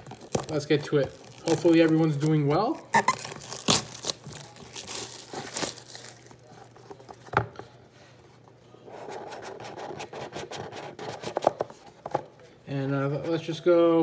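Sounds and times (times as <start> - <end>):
plastic shrink wrap crinkling: 0.0 - 7.2.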